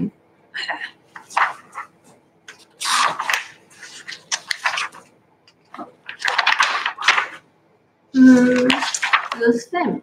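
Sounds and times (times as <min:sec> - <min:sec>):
paper pages rustling: 0:01.1 - 0:07.4, 0:08.2 - 0:09.6.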